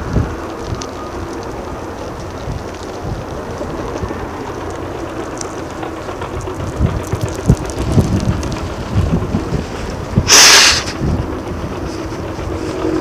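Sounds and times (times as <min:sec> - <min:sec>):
distant diesel machinery rumbling: 0:00.0 - 0:13.0
air release hiss: 0:10.2 - 0:11.0.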